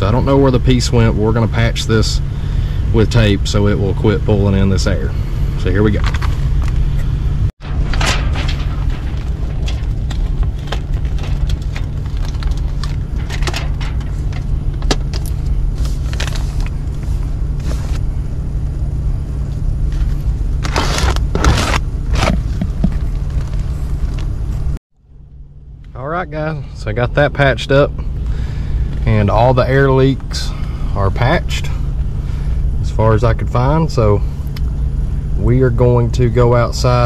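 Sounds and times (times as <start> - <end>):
air handler humming: 0.0 - 37.0
foil tape crinkling and ripping: 7.8 - 13.4, 20.6 - 23.6.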